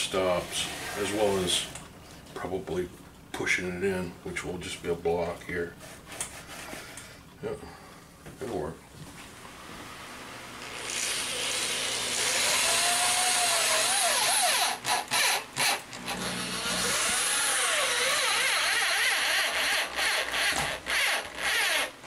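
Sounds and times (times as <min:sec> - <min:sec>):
cordless drill drilling into wood: 0:10.6 - 0:22.0.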